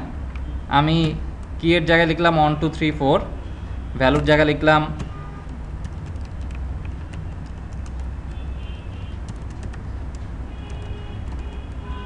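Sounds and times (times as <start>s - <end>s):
steady low hum: 0.0s - 12.0s
keyboard keys clicking: 4.1s - 8.4s, 9.2s - 11.8s.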